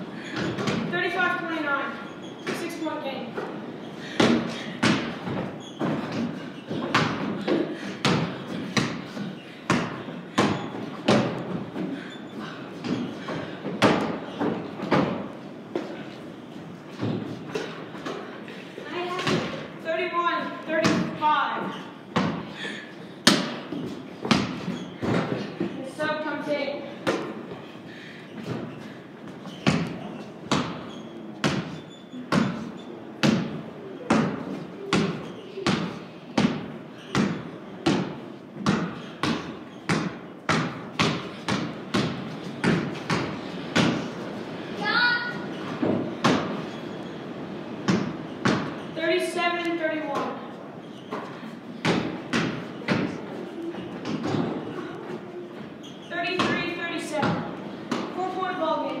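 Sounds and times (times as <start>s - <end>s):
basketball bouncing on wooden floor: 4.2s - 11.6s, 19.2s - 19.6s, 22.2s - 22.5s, 23.3s - 25.8s, 29.5s - 44.1s, 47.9s - 48.9s, 54.0s - 54.6s, 56.3s - 58.2s.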